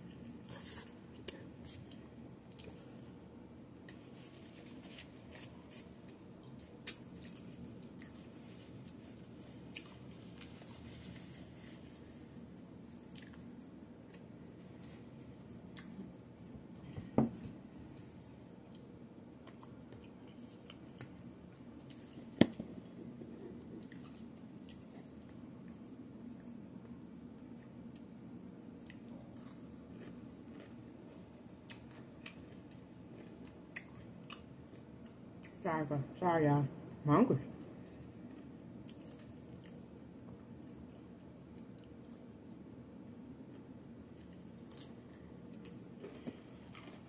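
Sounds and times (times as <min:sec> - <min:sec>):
faint chewing: 0:03.8 - 0:12.1, 0:12.8 - 0:16.1, 0:18.7 - 0:28.1, 0:28.8 - 0:35.6, 0:37.8 - 0:42.3, 0:43.5 - 0:47.0.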